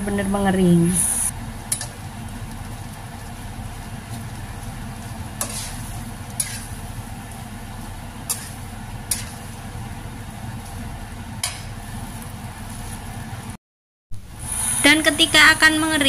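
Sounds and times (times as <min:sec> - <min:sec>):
metal spatula scraping a wok: 0:05.4 - 0:06.8, 0:08.2 - 0:09.5.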